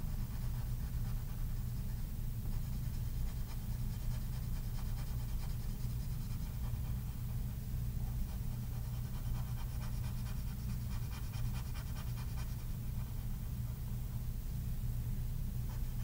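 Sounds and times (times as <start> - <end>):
steady low hum: 0.0 - 16.0
pencil scratching on paper: 0.1 - 7.1, 8.3 - 12.7.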